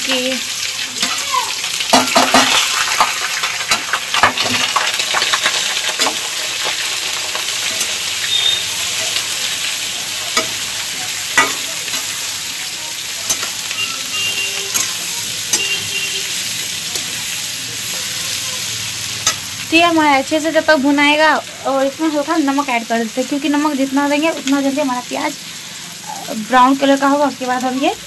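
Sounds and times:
onions sizzling in hot oil: 0:00.0 - 0:28.0
metal spatula scraping a pan: 0:01.0 - 0:19.6.

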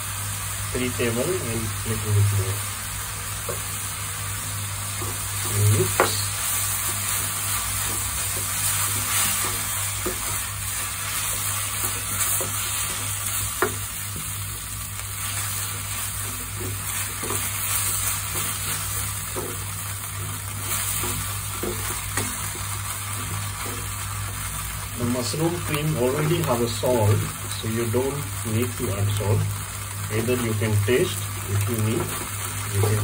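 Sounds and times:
steady sizzling: 0:00.0 - 0:33.0
spatula scraping frying pan: 0:05.0 - 0:24.2.

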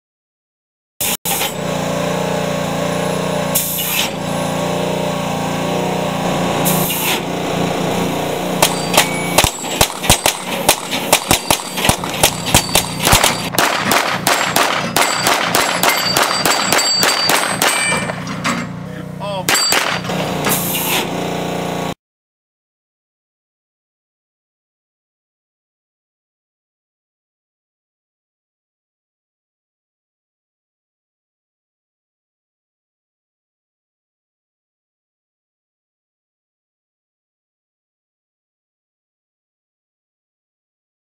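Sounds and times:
rapid gunfire: 0:08.6 - 0:18.2, 0:19.5 - 0:20.0
bullets clanging on steel targets: 0:08.6 - 0:21.1.

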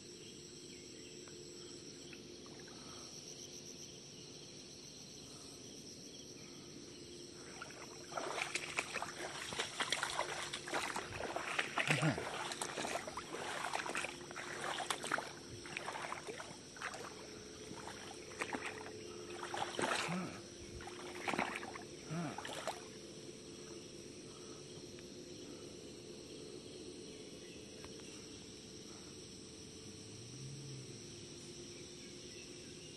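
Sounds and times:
insects chorus: 0:00.0 - 0:32.9
splashes wading through shallow water: 0:07.4 - 0:23.0.

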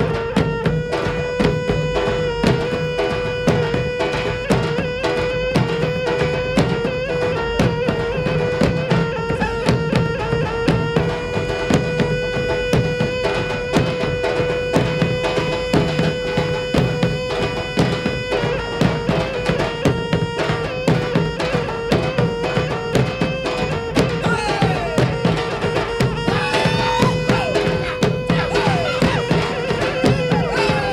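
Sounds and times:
busy drumming and percussion: 0:00.0 - 0:30.9.

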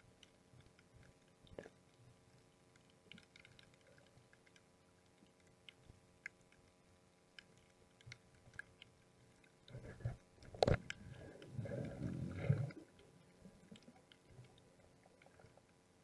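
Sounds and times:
faint underwater clicks: 0:00.0 - 0:16.0
low underwater rumbling: 0:09.7 - 0:15.6.

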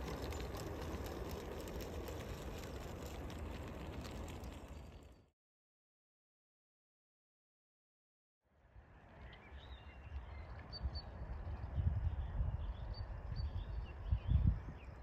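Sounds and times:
low uneven rumble: 0:00.0 - 0:05.2.

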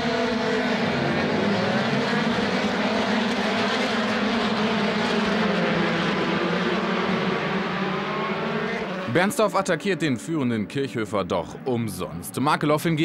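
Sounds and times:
racing car engines at high revs: 0:00.0 - 0:10.4.

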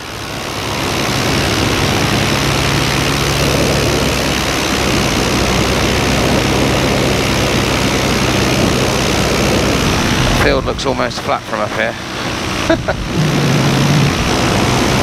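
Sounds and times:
paramotor engine drone: 0:00.0 - 0:15.0
wind hiss: 0:08.3 - 0:13.2.

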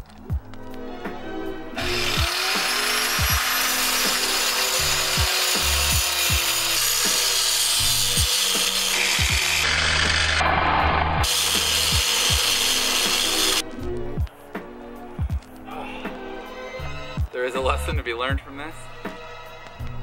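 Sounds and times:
grinder cutting through steel: 0:01.8 - 0:13.6.

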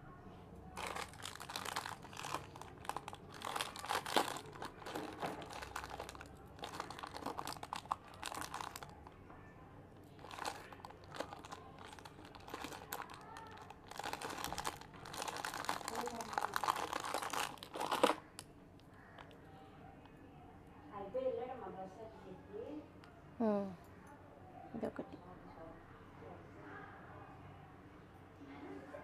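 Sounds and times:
plastic packets crinkling: 0:00.8 - 0:09.1, 0:10.0 - 0:19.4.

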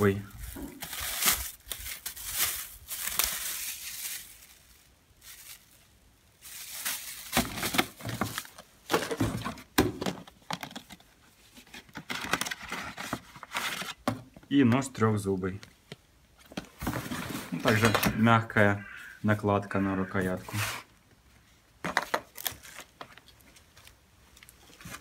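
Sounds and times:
plastic wrapping crinkling: 0:00.0 - 0:09.1
cardboard packaging shuffling: 0:00.0 - 0:09.7, 0:10.7 - 0:14.0, 0:16.6 - 0:18.1, 0:22.0 - 0:25.0.

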